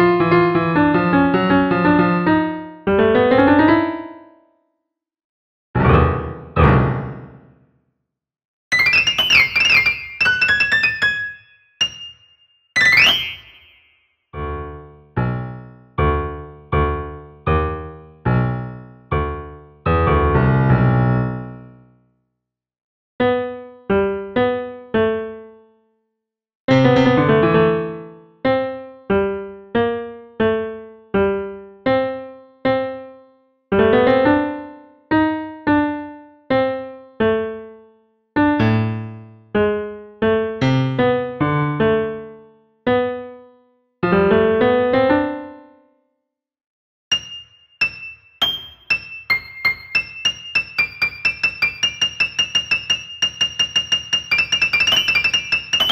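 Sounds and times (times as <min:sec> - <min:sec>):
slow solo piano: 0:00.0 - 0:04.4, 0:05.8 - 0:07.5, 0:14.4 - 0:21.8, 0:47.1 - 0:55.9
solo piano music: 0:00.0 - 0:04.6, 0:05.8 - 0:07.6, 0:08.7 - 0:22.0, 0:23.2 - 0:25.8, 0:26.7 - 0:46.1, 0:47.1 - 0:55.9.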